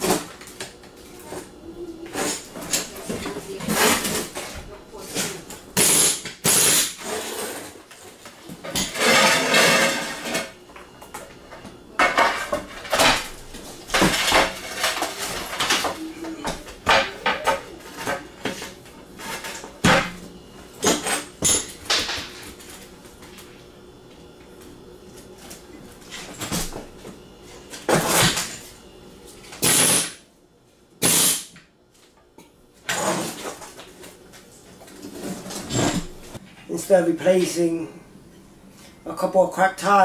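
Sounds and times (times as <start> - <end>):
tiles scraping: 1.1 - 10.6, 12.0 - 19.8.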